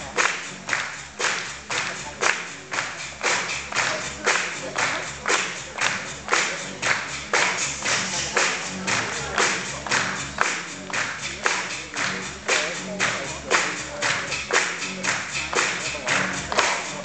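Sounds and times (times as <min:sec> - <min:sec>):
music with a sharp beat: 0:00.0 - 0:17.0.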